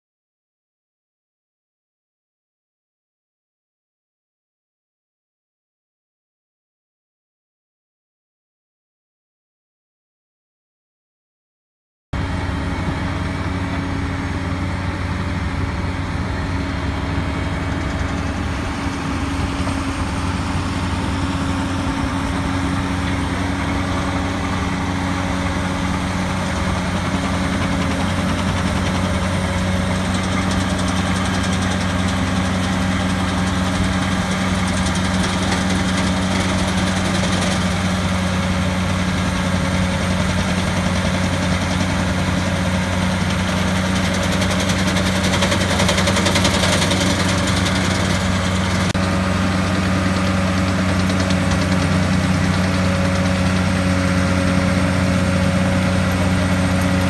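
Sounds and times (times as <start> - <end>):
heavy diesel engine humming: 12.2 - 57.0.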